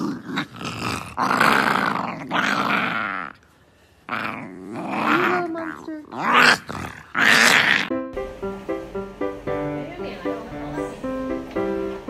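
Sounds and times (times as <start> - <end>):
dog growling raspily: 0.0 - 3.5, 4.1 - 7.9
dog grunting: 4.1 - 7.9.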